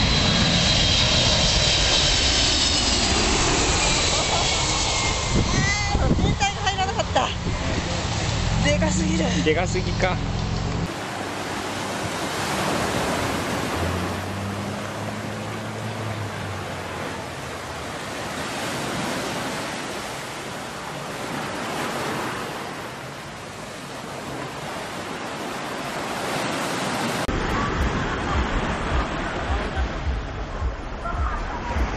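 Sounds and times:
wind on microphone: 0.0s - 10.9s
faint low propeller plane drone: 0.0s - 18.9s
ocean surf breaking: 0.0s - 31.9s.

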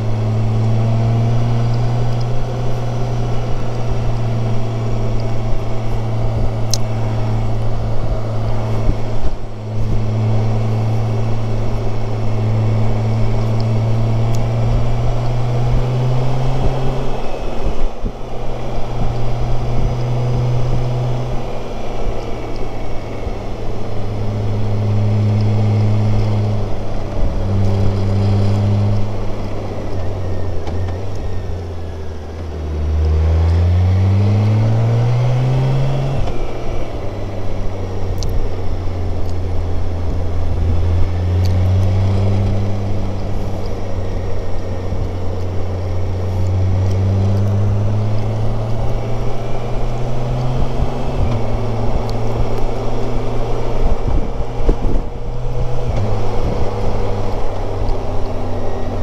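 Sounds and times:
motorcycle engine running: 0.0s - 59.0s
wind rush over helmet: 48.4s - 59.0s.

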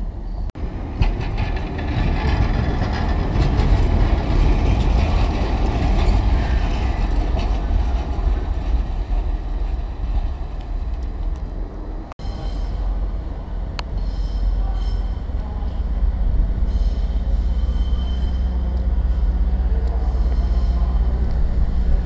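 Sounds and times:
diesel train engine rumble: 0.0s - 22.0s
diesel train rumbling: 0.0s - 22.0s
faint train squeal: 12.2s - 13.0s, 13.9s - 16.0s, 16.6s - 21.2s.

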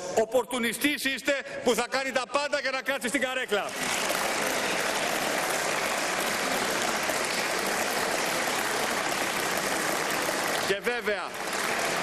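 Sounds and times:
crowd applauding: 3.6s - 12.0s.

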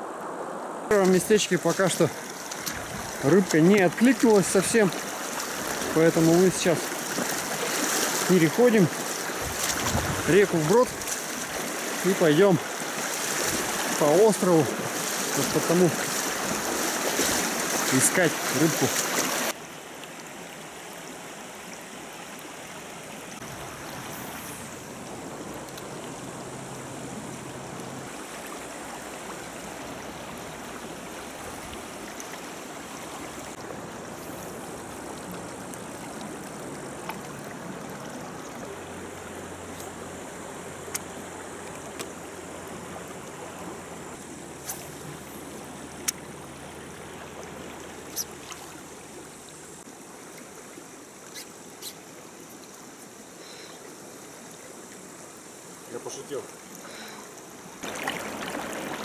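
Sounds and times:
river water flowing: 0.0s - 59.0s.

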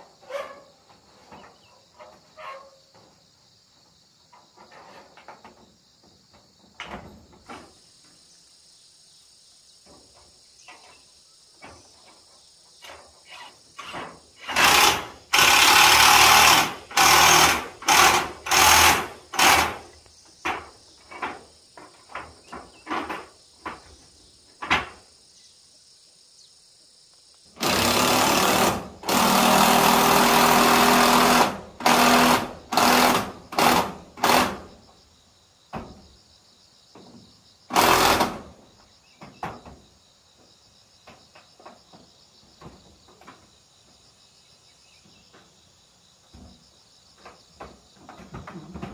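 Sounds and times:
insects chirring: 0.0s - 48.9s
power drill driving screws into metal: 13.8s - 19.9s, 27.6s - 34.7s, 37.7s - 38.5s.

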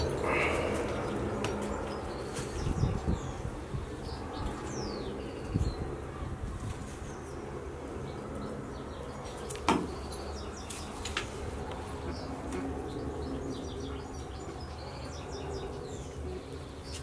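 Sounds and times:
steady low rumble: 0.0s - 9.3s
small birds chirping: 0.0s - 17.0s.

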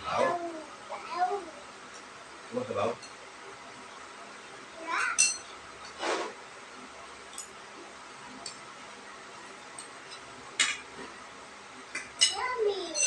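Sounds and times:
quiet eating sounds: 0.0s - 13.0s.

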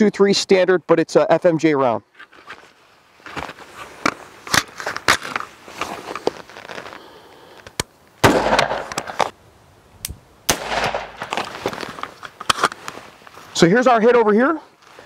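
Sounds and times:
rifle shot: 8.2s - 9.3s, 10.5s - 11.5s.

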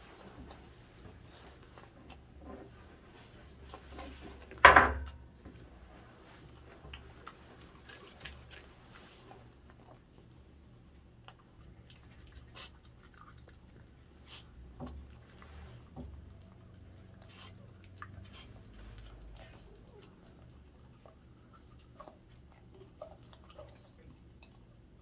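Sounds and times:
dog chewing raw meat: 6.6s - 25.0s.

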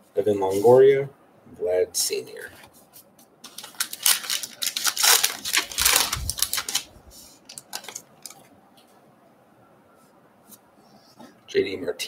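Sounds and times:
card pack wrapper tearing and crinkling: 3.4s - 8.4s.

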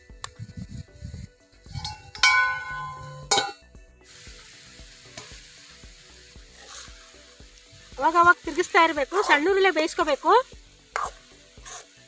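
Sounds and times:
chicken sizzling: 0.0s - 12.0s
metal lid clanking on pan: 1.8s - 3.6s.

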